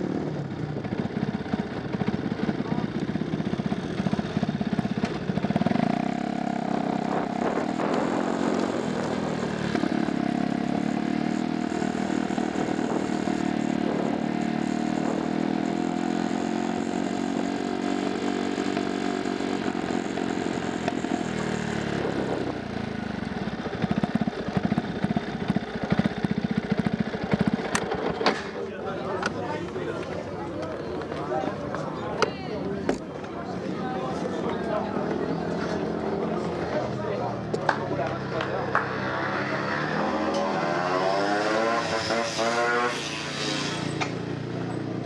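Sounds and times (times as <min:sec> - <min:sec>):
motorcycle engine idling and revving: 0:00.0 - 0:45.0.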